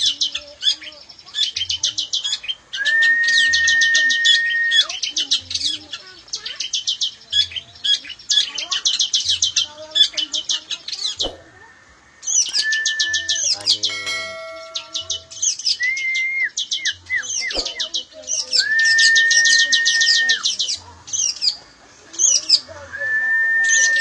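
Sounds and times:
birds chirping and whistling: 0:00.0 - 0:11.5, 0:12.2 - 0:21.6, 0:22.2 - 0:24.0
brief ringing tone: 0:13.8 - 0:15.5.

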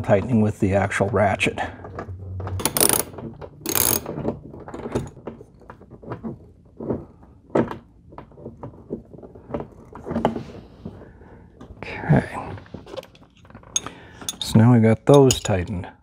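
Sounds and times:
ratchet clicking and scraping: 0:02.6 - 0:05.1.

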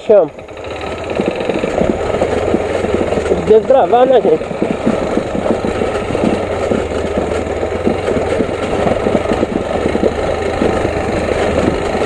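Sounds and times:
motorcycle engine running: 0:00.0 - 0:12.0
rattling and knocking on gravel: 0:00.0 - 0:12.0.

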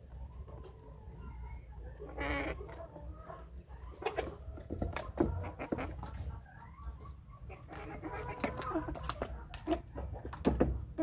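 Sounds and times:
beaks pecking on floor: 0:00.0 - 0:11.0
chicks clucking: 0:00.0 - 0:11.0.

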